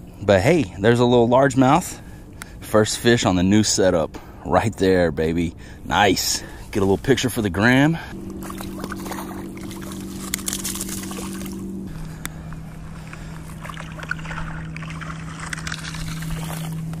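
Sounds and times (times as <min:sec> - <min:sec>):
motorboat engine droning: 0:00.0 - 0:17.0
footsteps on gravel: 0:08.2 - 0:17.0.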